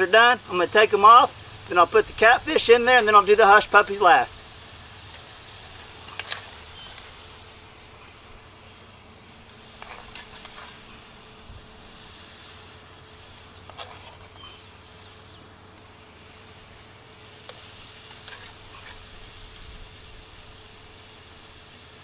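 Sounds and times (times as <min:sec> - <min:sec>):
faint insect buzz: 0:00.0 - 0:22.0
steady low hiss: 0:00.0 - 0:22.0
metal spatula scraping cast iron pot: 0:09.5 - 0:11.0, 0:13.5 - 0:14.7, 0:17.4 - 0:19.2.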